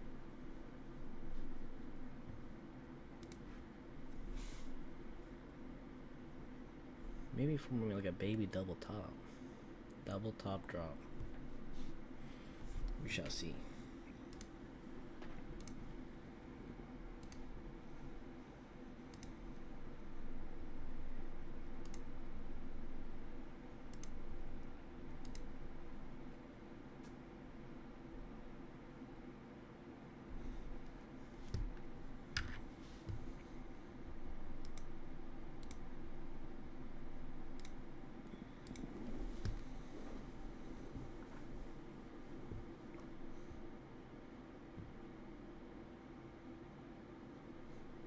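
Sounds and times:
low steady hum: 0:00.0 - 0:48.0
small sharp clicks: 0:03.2 - 0:03.5, 0:14.3 - 0:14.6, 0:15.6 - 0:15.8, 0:19.1 - 0:19.4, 0:21.8 - 0:22.1, 0:23.9 - 0:24.2, 0:25.2 - 0:25.5, 0:34.6 - 0:34.9, 0:35.6 - 0:35.8, 0:37.6 - 0:39.7.

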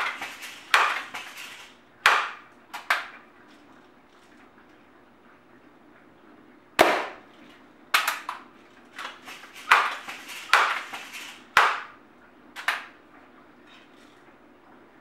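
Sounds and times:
air rifle shots: 0:06.8 - 0:07.2.

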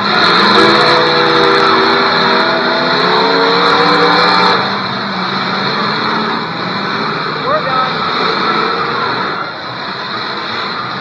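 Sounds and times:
car engines revving hard: 0:00.0 - 0:11.0.

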